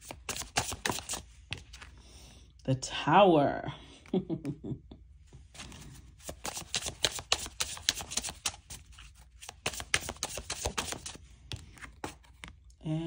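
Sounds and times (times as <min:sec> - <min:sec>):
cards being shuffled: 0:00.0 - 0:02.0, 0:05.5 - 0:12.6.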